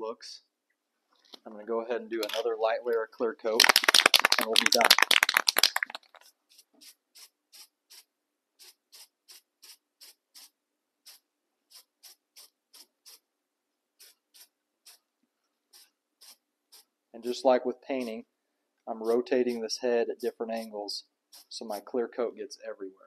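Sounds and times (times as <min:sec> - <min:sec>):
aerosol can rattling: 0:03.5 - 0:08.0, 0:08.6 - 0:13.2, 0:21.3 - 0:21.6
spray can hissing in puffs: 0:03.6 - 0:13.2, 0:14.0 - 0:15.0, 0:15.7 - 0:17.4, 0:19.0 - 0:21.9.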